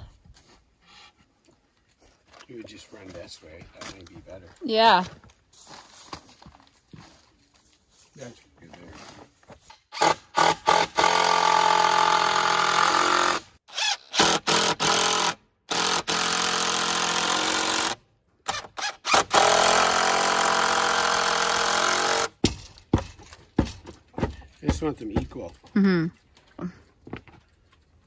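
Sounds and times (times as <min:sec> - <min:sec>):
impact driver driving screws: 0:09.9 - 0:22.8.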